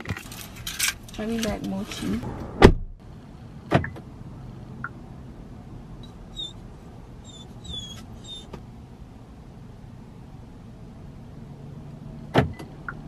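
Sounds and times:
small dog whimpering: 6.3s - 6.6s, 7.2s - 8.5s.

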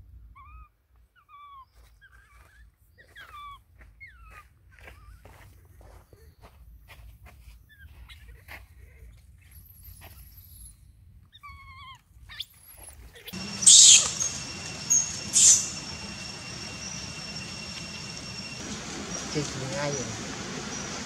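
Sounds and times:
baby monkey crying: 13.2s - 18.6s
shrill screams: 13.4s - 20.9s
steady hiss: 13.4s - 21.0s.

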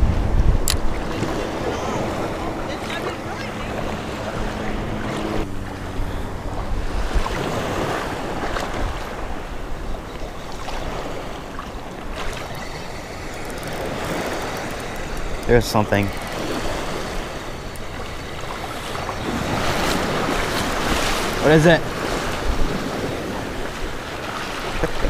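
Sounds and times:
small waves in shallow surf: 0.0s - 25.0s
wind buffeting the microphone: 0.0s - 25.0s
faint clicks: 12.4s - 16.4s.

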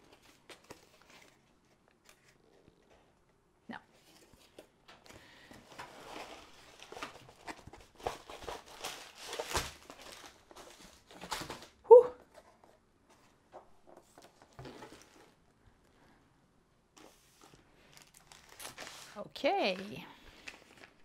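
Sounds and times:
plastic and paper rustling: 0.0s - 2.6s, 4.0s - 15.4s, 17.0s - 21.0s.

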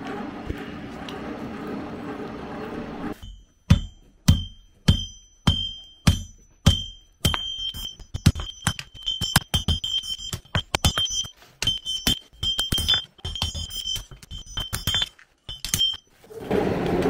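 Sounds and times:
hammer striking anvil: 3.2s - 16.1s.

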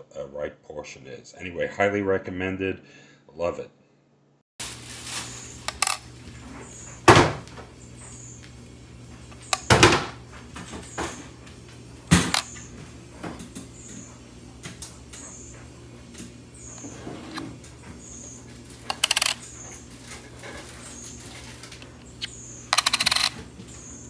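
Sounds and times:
coins clacking on scale: 18.9s - 19.4s, 22.7s - 23.4s.

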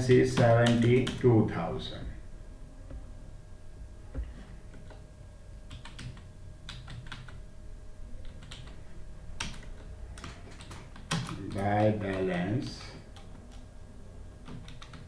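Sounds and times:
typing on computer keyboard: 0.0s - 1.3s, 5.7s - 7.4s, 8.2s - 8.8s, 9.4s - 13.6s, 14.4s - 15.0s.

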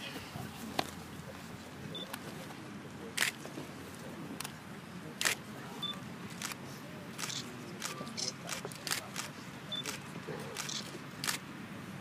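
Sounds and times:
camera shutter clicking: 7.2s - 10.0s, 10.6s - 11.4s.

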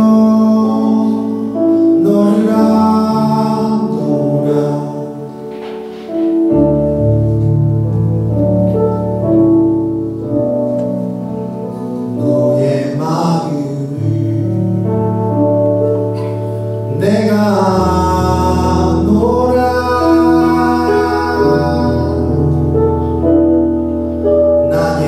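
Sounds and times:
man singing into a microphone: 0.0s - 5.6s, 12.1s - 15.0s, 15.8s - 22.8s, 24.6s - 25.0s
keyboard chords and bass: 0.0s - 25.0s.

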